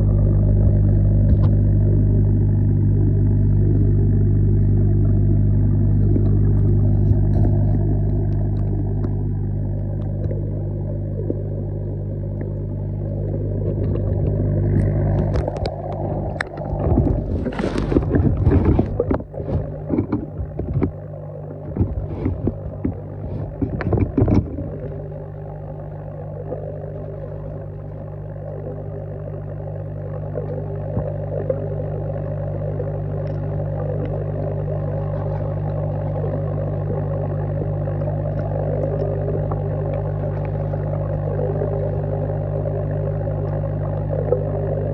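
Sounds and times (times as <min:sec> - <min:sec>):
air pump humming underwater: 0:00.0 - 0:44.9
clicks knocks and scraping: 0:00.5 - 0:01.6, 0:06.0 - 0:09.2, 0:13.6 - 0:21.0, 0:21.6 - 0:25.0.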